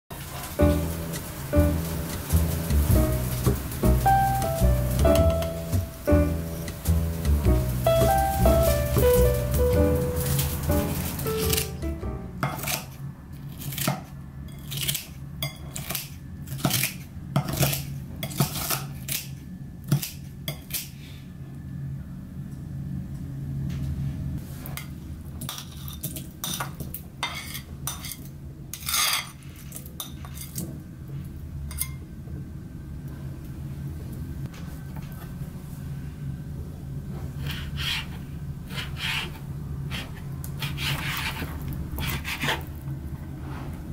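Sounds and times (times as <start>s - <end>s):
steady low hum: 0.6s - 13.4s.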